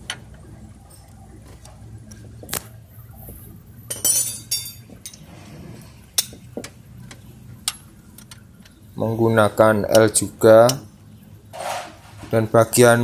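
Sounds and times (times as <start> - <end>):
metal tools clinking: 3.9 - 5.3.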